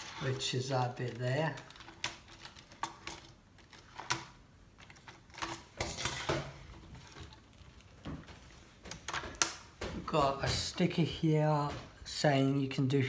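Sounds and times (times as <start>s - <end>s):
plastic bricks clicking and knocking: 1.0s - 6.3s.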